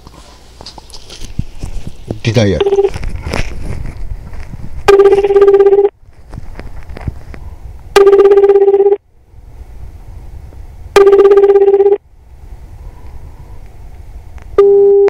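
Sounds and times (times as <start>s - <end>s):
phone line hiss: 2.6s - 3.0s, 4.9s - 5.9s, 7.9s - 9.0s, 10.9s - 12.0s, 14.6s - 15.0s
telephone ringback tone: 2.6s - 3.0s, 4.9s - 5.9s, 8.0s - 9.0s, 11.0s - 12.0s, 14.6s - 15.0s.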